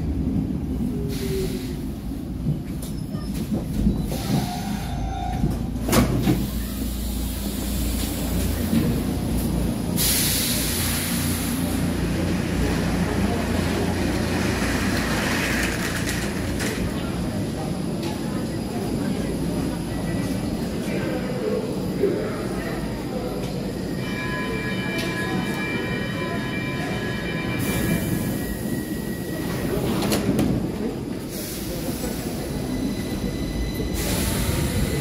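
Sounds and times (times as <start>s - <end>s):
metro train rumble: 0.0s - 35.0s.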